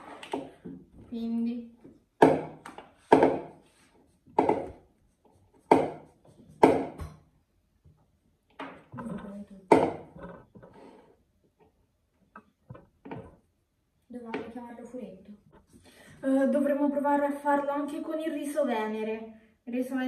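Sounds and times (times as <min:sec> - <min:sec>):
wooden spoon knocking a bowl: 0:02.2 - 0:03.6, 0:05.7 - 0:07.3, 0:09.7 - 0:10.1.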